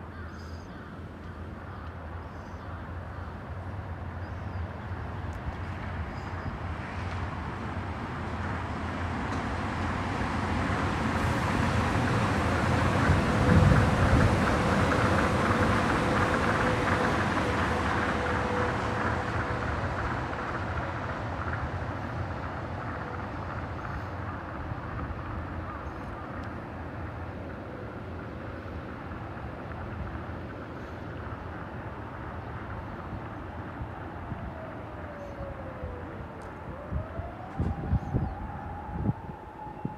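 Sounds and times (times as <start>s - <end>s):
monorail train passing: 0.0s - 39.9s.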